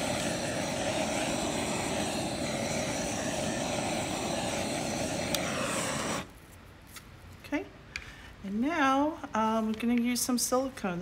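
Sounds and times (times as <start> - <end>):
torch flame roaring: 0.0 - 6.4.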